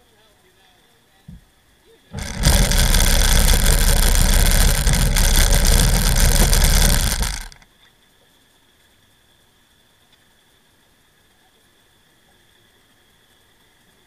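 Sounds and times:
personal watercraft engine running: 2.2s - 7.6s.

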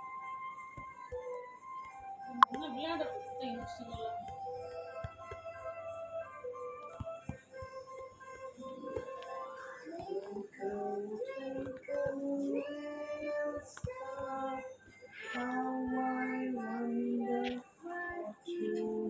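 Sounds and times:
high singing voice over music: 7.2s - 19.0s.

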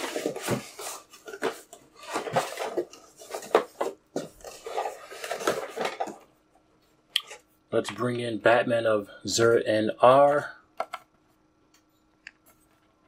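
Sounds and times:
rummaging through plastic toys: 0.0s - 6.3s.

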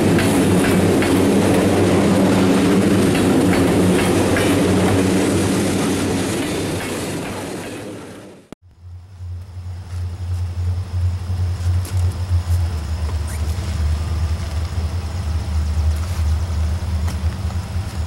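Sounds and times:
low engine rumble: 8.6s - 18.0s.

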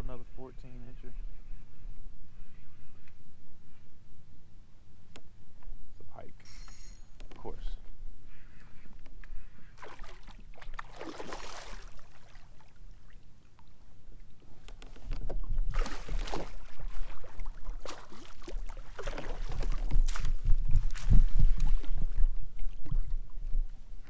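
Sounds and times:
water splashing against kayak: 9.8s - 23.8s.

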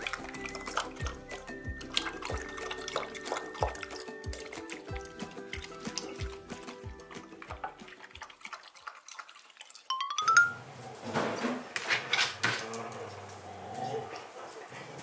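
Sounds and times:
dog lapping water: 0.0s - 9.9s
background music with beat: 0.9s - 7.9s
rising chime sound effect: 9.9s - 10.6s.

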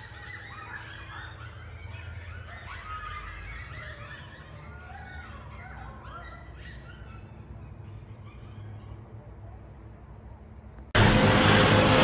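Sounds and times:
coyotes howling and yipping: 0.0s - 9.9s
low rumble: 10.9s - 12.0s.

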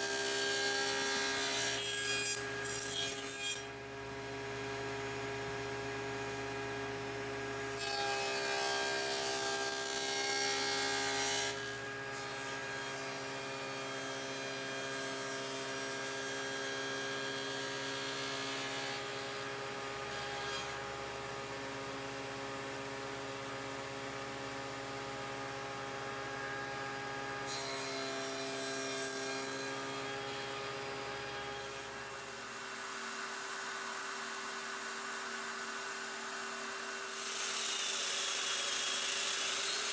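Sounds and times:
saw cutting through wood: 0.0s - 4.6s, 7.7s - 20.9s, 26.2s - 39.9s
table saw humming: 0.0s - 39.9s.

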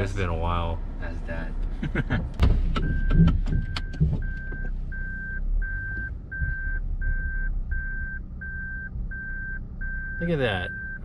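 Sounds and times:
low car hum: 0.0s - 11.0s
sharp clicks and knocks: 2.2s - 4.8s
reverse warning beeps: 2.8s - 11.0s.

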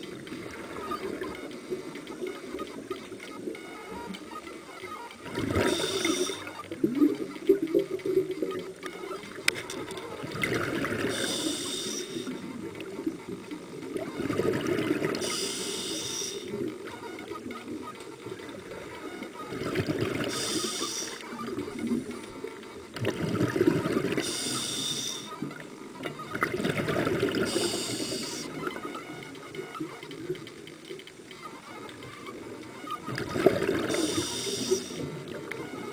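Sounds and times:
diver breathing through regulator: 5.6s - 6.5s, 11.0s - 12.4s, 15.2s - 16.5s, 20.3s - 21.2s, 24.2s - 25.3s, 27.4s - 28.5s, 33.8s - 35.0s.

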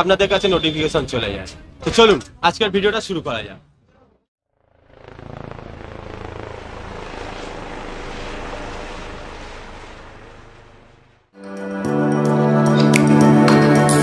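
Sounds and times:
low hum: 4.6s - 11.3s.

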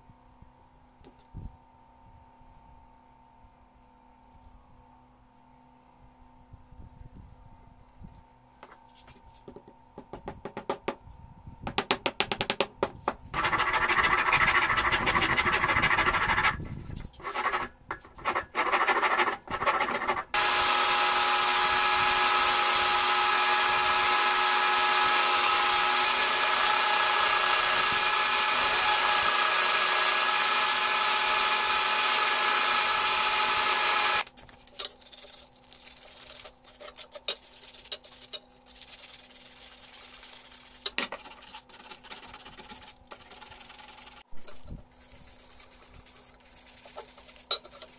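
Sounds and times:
hand sanding strokes: 13.4s - 20.4s, 35.1s - 44.2s, 44.8s - 47.9s
belt sander running: 19.9s - 34.2s
power drill boring into wood: 20.3s - 34.2s.

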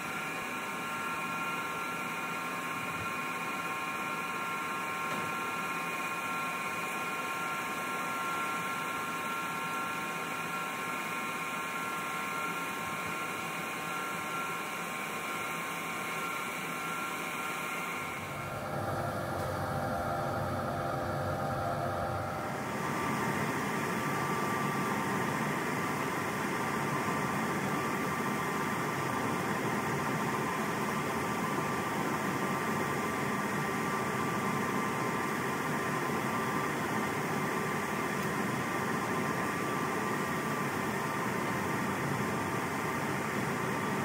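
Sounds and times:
faint high whine: 0.0s - 29.4s.

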